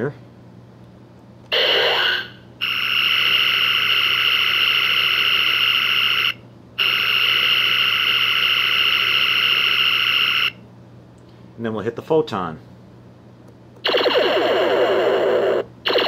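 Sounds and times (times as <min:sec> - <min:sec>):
high-pitched phaser firing: 0:01.5 - 0:10.6, 0:13.8 - 0:16.0.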